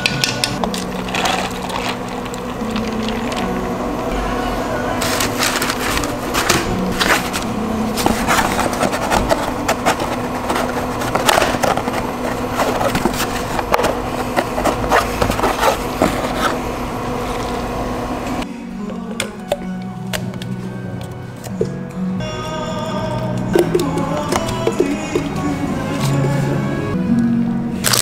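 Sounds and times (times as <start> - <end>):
hum of cafe equipment: 0.0 - 28.0
foam container creaking and scraping: 0.6 - 3.6, 5.0 - 17.4.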